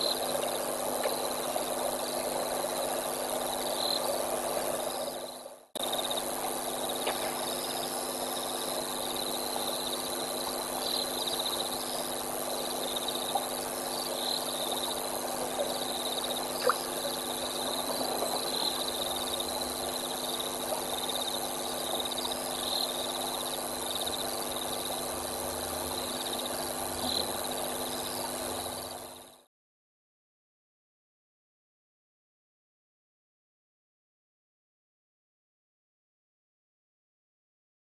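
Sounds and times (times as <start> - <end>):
frogs calling: 0.0 - 29.4
insects chirring: 0.0 - 29.4.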